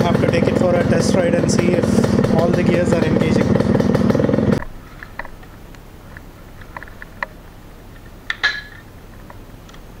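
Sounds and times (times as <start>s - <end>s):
two-stroke engine running: 0.0s - 4.8s
metallic clink: 8.3s - 8.8s.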